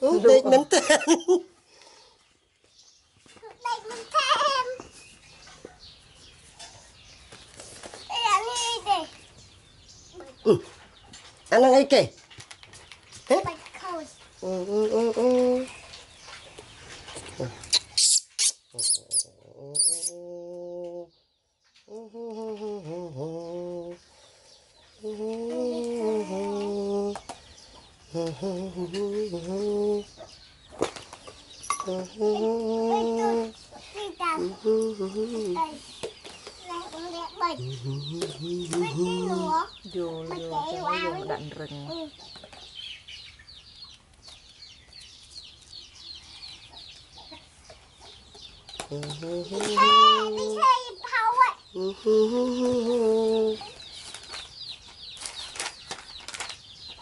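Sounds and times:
man humming: 0:14.4 - 0:15.8, 0:18.8 - 0:21.2, 0:21.9 - 0:24.0, 0:25.0 - 0:27.3, 0:28.1 - 0:30.2, 0:31.8 - 0:33.6, 0:34.4 - 0:35.8, 0:37.6 - 0:40.5, 0:48.8 - 0:50.6, 0:51.8 - 0:53.8
quick high peeps: 0:17.7 - 0:19.2
chickens clucking: 0:23.8 - 0:54.9.

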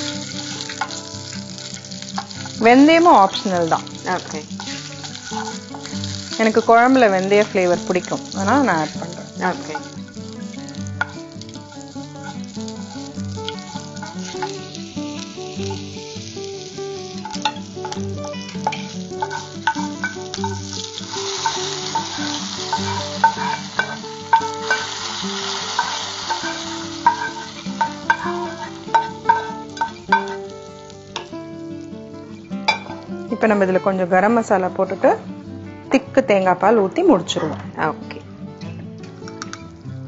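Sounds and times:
spoon scraping and tapping pan: 0:00.0 - 0:01.1, 0:01.7 - 0:02.6, 0:03.7 - 0:14.9, 0:15.6 - 0:16.0, 0:17.2 - 0:30.5, 0:32.7 - 0:33.1
spices sizzling in hot oil: 0:00.0 - 0:35.2, 0:39.0 - 0:40.0.

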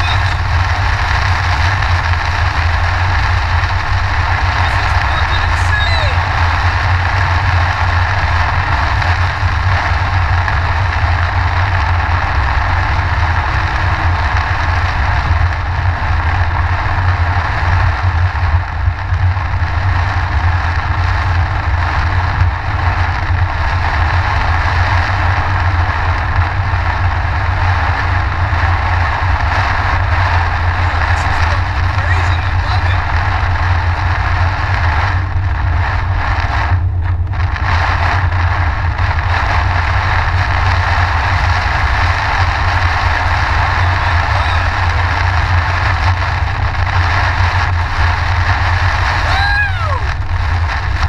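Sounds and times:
road and engine rumble: 0:00.0 - 0:51.0.

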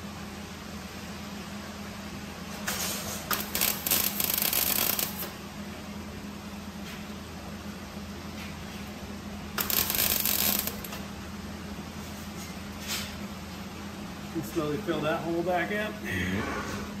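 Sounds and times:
steady low hum: 0:00.0 - 0:17.0
welder crackling: 0:03.2 - 0:05.4, 0:09.5 - 0:11.1.

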